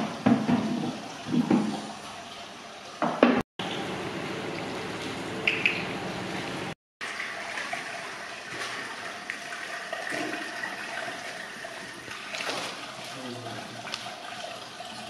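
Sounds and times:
water sloshing in plastic basin: 0:07.1 - 0:15.0
faint short splashes: 0:12.1 - 0:13.4.

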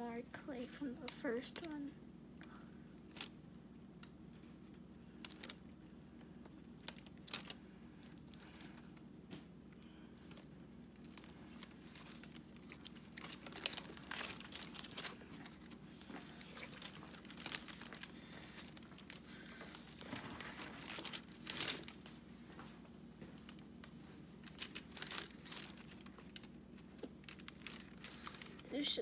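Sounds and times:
slime squished by hand: 0:02.4 - 0:22.2.

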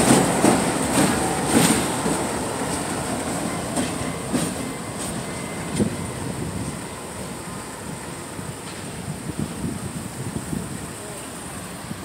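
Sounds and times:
train knock: 0:00.0 - 0:06.0
train wheels clicking over rail joints: 0:00.0 - 0:06.0
freight train rumble: 0:00.0 - 0:12.0.

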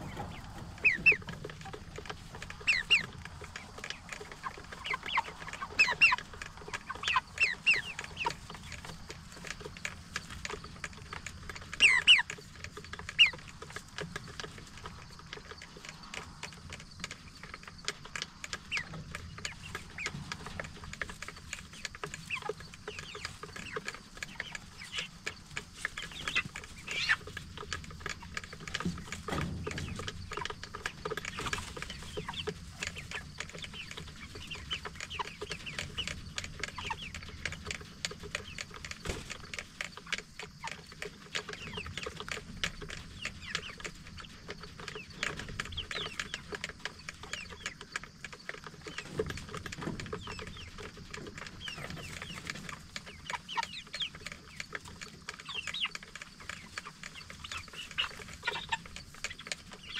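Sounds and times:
chickens making short calls: 0:00.0 - 0:59.9.

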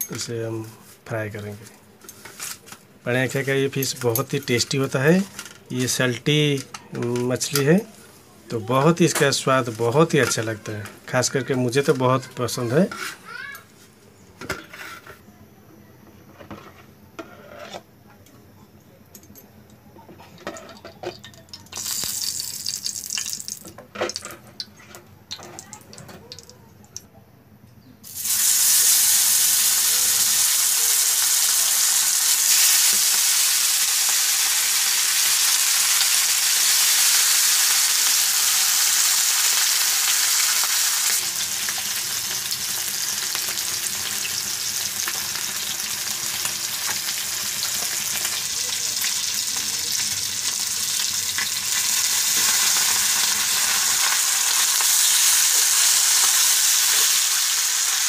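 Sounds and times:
fish sizzling in hot oil: 0:21.2 - 0:24.2, 0:28.0 - 0:58.0.

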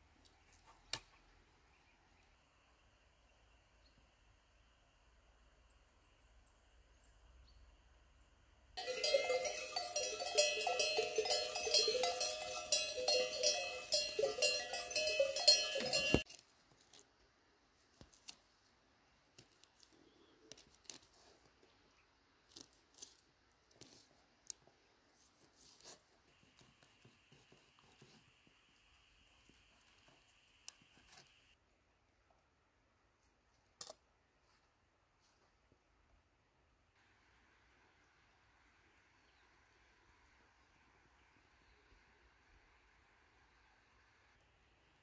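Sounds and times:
sheep bells clanking: 0:08.8 - 0:16.2.

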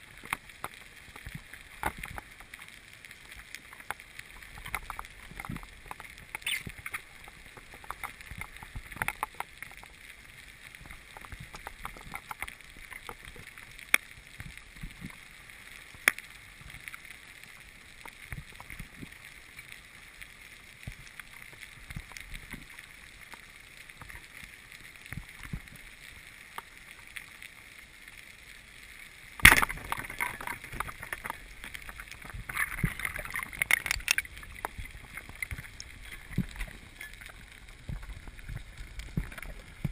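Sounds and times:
splashing and crackling: 0:00.0 - 0:39.9
water sloshing and gurgling: 0:29.4 - 0:39.9.

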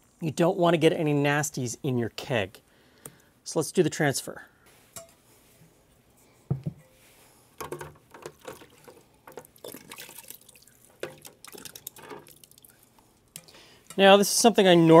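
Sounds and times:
water splashes and drips: 0:08.1 - 0:13.5.

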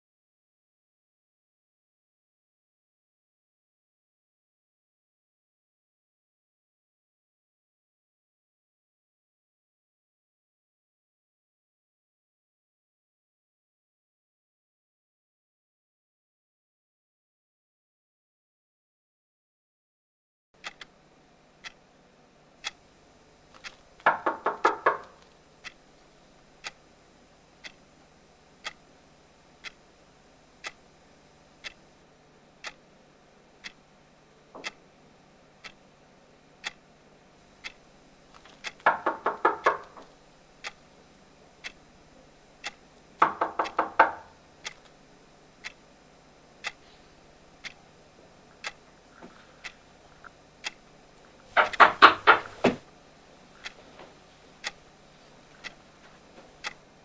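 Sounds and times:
clock ticking: 0:20.6 - 0:20.9, 0:23.6 - 0:25.8, 0:26.6 - 0:26.8, 0:27.6 - 0:27.8, 0:28.6 - 0:28.8, 0:29.6 - 0:29.8, 0:30.6 - 0:30.9, 0:31.6 - 0:31.8, 0:32.6 - 0:32.9, 0:33.6 - 0:33.8, 0:34.6 - 0:34.8, 0:35.6 - 0:35.8, 0:36.6 - 0:36.8, 0:37.6 - 0:37.9, 0:38.6 - 0:40.8, 0:41.6 - 0:41.8, 0:42.6 - 0:44.9, 0:45.6 - 0:45.9, 0:48.6 - 0:48.8, 0:49.6 - 0:50.8, 0:51.6 - 0:52.8, 0:54.6 - 0:54.8, 0:55.5 - 0:55.8, 0:56.6 - 0:56.9.

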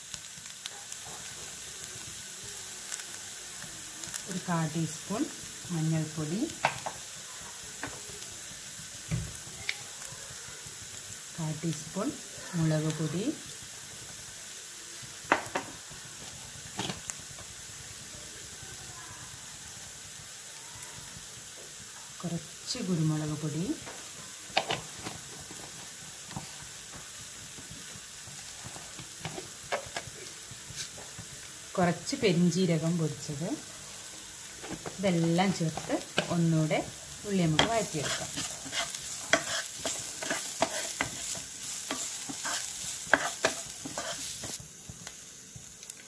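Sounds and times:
onions sizzling in a pan: 0:00.0 - 0:46.0
spoon stirring and scraping pan: 0:15.2 - 0:17.6, 0:23.8 - 0:31.5, 0:33.6 - 0:45.0
wooden spatula scraping a pan: 0:37.4 - 0:44.6.

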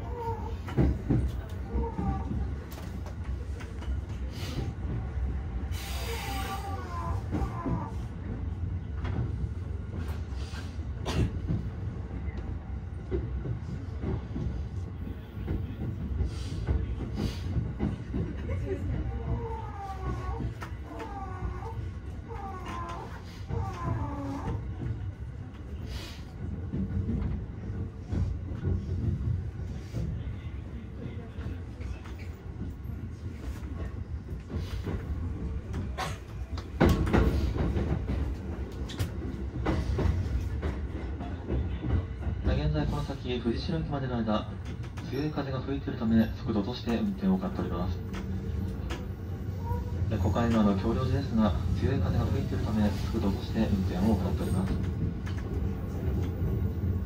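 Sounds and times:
train wheels rumbling on rails: 0:00.0 - 0:57.0
clacks over rail joints: 0:00.1 - 0:04.2, 0:31.0 - 0:43.0, 0:44.4 - 0:45.2, 0:52.0 - 0:56.9.

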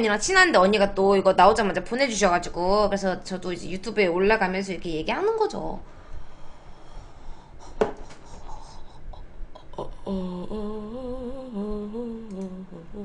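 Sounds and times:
woman humming: 0:07.6 - 0:13.0.

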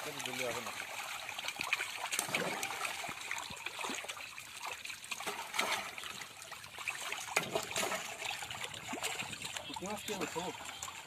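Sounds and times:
loud splash: 0:00.0 - 0:06.2
fish splashing in water: 0:00.0 - 0:11.0.

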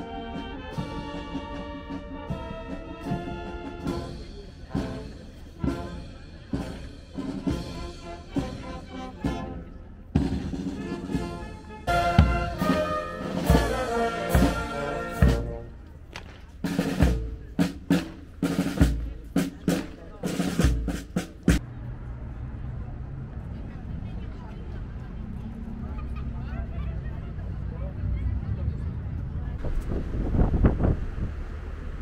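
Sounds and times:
marching band playing: 0:00.0 - 0:21.6
heavy bass drum strokes: 0:10.2 - 0:15.8, 0:16.6 - 0:21.6.

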